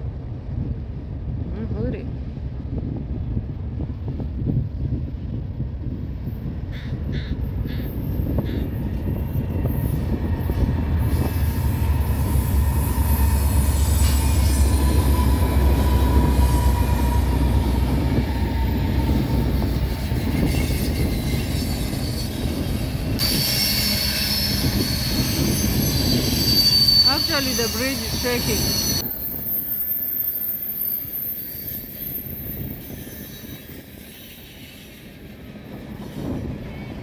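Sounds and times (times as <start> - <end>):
diesel locomotive rumbling past: 0.0 - 37.0
rolling freight cars: 0.0 - 37.0
high-pitched wheel squeal: 7.7 - 35.2.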